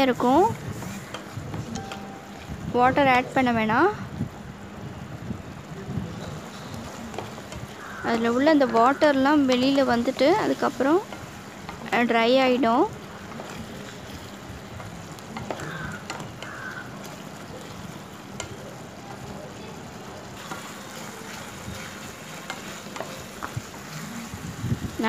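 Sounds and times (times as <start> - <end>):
spatula stirring and scraping: 0.0 - 1.9, 6.2 - 18.9, 20.4 - 24.5
food bubbling and sizzling: 0.0 - 25.0.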